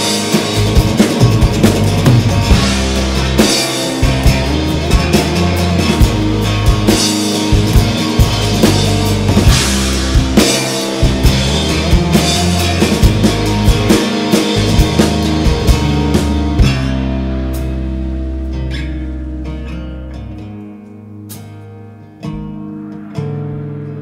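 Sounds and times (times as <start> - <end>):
drum kit steady beat: 0.0 - 18.5
acoustic guitar strummed hard: 0.0 - 24.0
bass guitar: 0.0 - 24.0.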